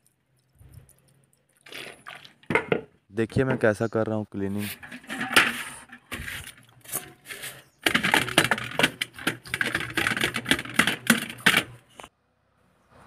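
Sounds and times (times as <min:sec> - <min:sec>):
brush scrubbing metal part: 0:04.6 - 0:11.8.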